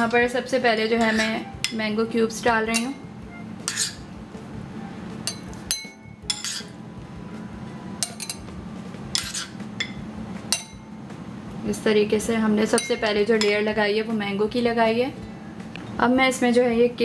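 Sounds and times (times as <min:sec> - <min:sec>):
spoon clinking against wine glasses: 0:01.0 - 0:01.8, 0:05.2 - 0:06.7, 0:08.0 - 0:08.5.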